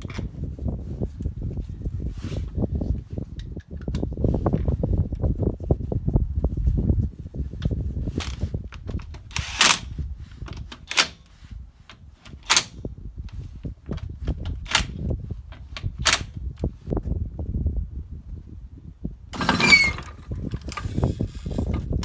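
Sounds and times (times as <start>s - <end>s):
cordless impact wrench bursts: 9.3s - 9.9s.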